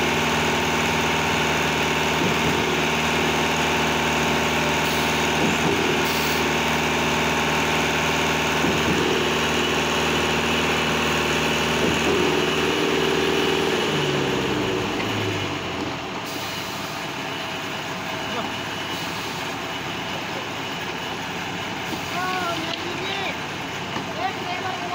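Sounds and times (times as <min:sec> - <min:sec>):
motor slowing down: 0:00.0 - 0:16.2.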